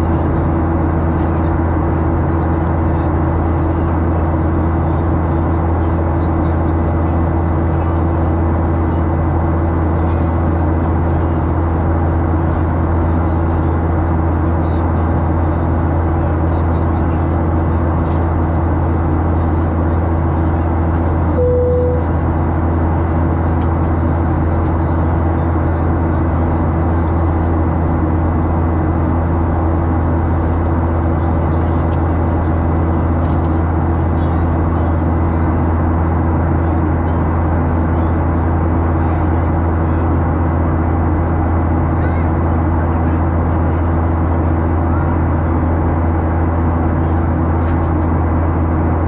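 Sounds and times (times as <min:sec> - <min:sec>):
aircraft cabin engine drone: 0:00.0 - 0:49.0
brief steady tone: 0:21.3 - 0:22.1.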